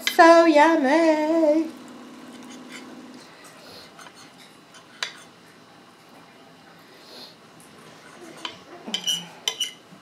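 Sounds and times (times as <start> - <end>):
fork clinking on a plate: 8.4 - 9.8.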